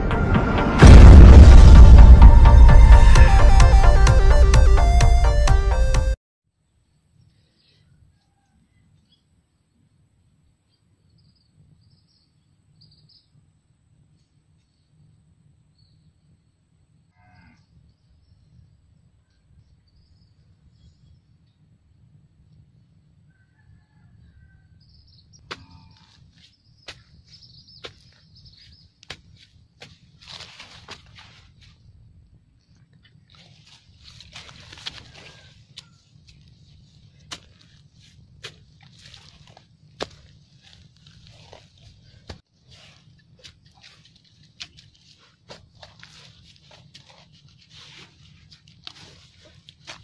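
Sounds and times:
low rumble: 0.0s - 5.0s.

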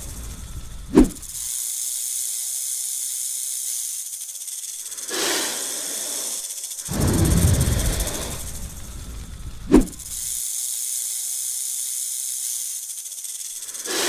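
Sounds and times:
snake hissing: 0.0s - 1.4s, 4.8s - 10.3s, 13.6s - 14.0s.

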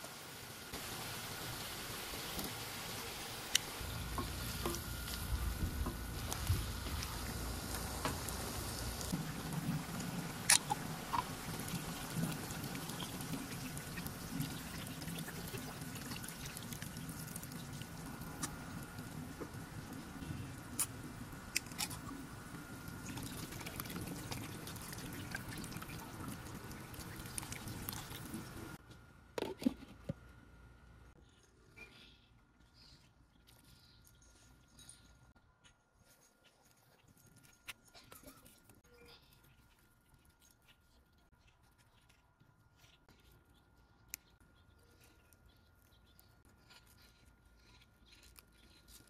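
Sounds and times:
food sizzling in a wok: 0.0s - 9.2s.

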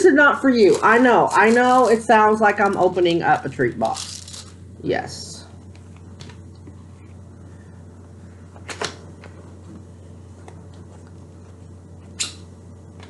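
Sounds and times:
low electrical hum: 0.0s - 13.0s
packaging rustling and crinkling: 0.5s - 4.7s.

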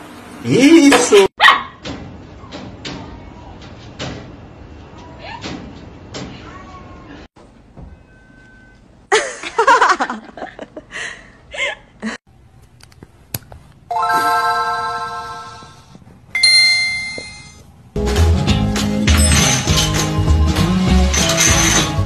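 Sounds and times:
bell-like chimes: 16.4s - 17.6s.

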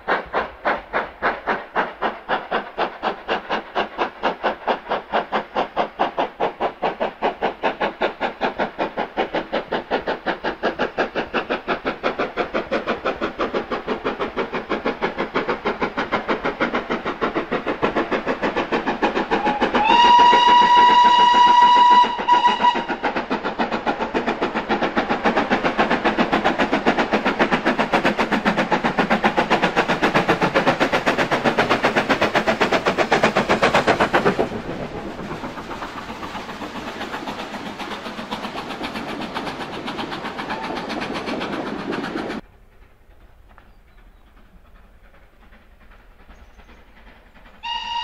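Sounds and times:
steam engine exhaust beating: 0.0s - 48.0s
steam locomotive whistle: 19.4s - 23.0s, 40.4s - 41.0s, 47.6s - 48.0s.

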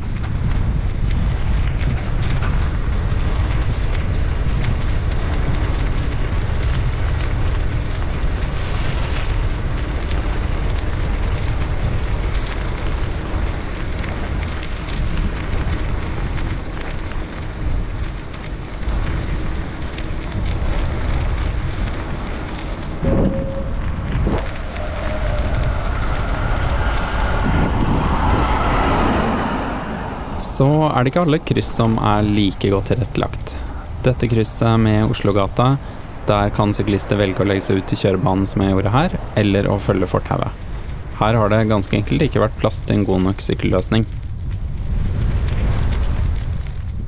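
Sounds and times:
wind buffeting microphone: 0.0s - 47.0s
street traffic: 23.5s - 32.2s.

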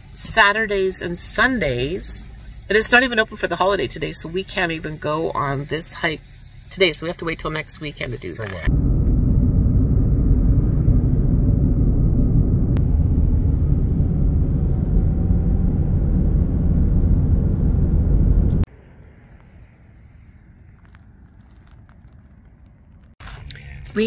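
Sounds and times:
faint outdoor background: 0.0s - 8.7s
car road rumble: 0.0s - 24.0s.

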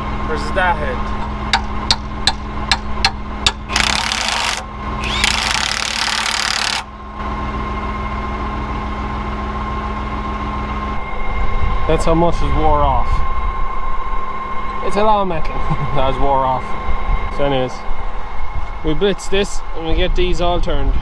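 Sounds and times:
impact wrench hammering: 1.5s - 6.9s.

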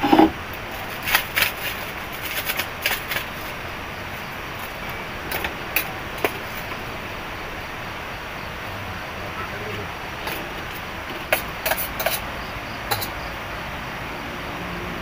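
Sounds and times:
steady background hiss: 0.0s - 15.0s
plastic sachets crinkling: 0.6s - 5.5s.

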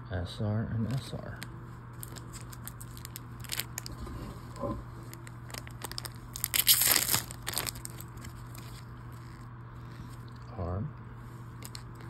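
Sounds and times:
foil wrapper tearing and crinkling: 2.0s - 4.0s, 5.0s - 9.5s, 11.6s - 12.0s.

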